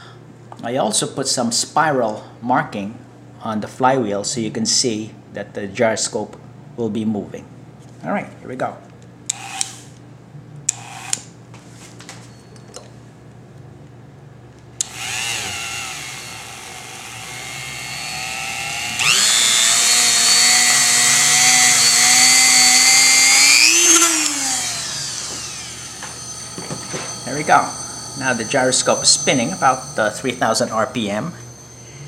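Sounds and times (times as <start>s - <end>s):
rotary tool high whine: 9.3s - 10.0s, 10.7s - 11.3s, 14.8s - 32.0s.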